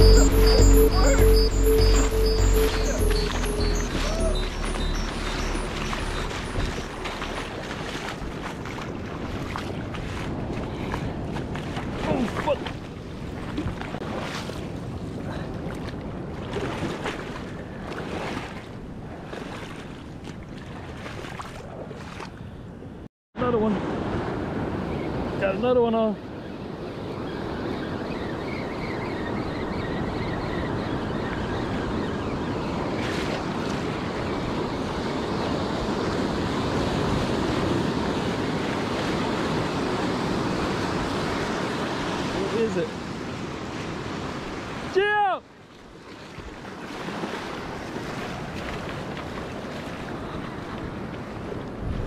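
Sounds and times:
surf washing over sand: 0:00.0 - 0:22.0, 0:32.8 - 0:45.3, 0:45.9 - 0:52.0
wind noise on microphone: 0:00.0 - 0:22.4, 0:46.4 - 0:52.0.

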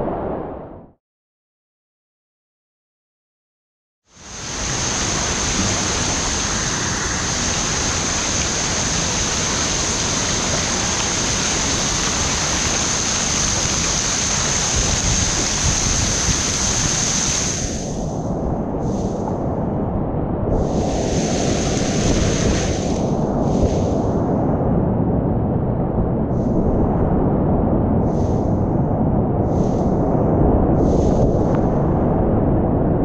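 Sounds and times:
river water rushing: 0:04.3 - 0:17.8.

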